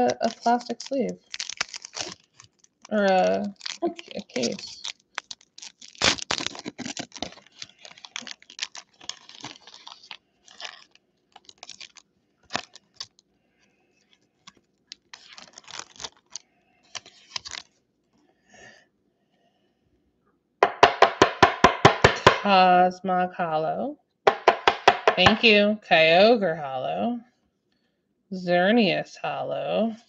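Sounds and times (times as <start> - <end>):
foil wrapper tearing and crinkling: 0.0 - 13.2, 14.0 - 17.8.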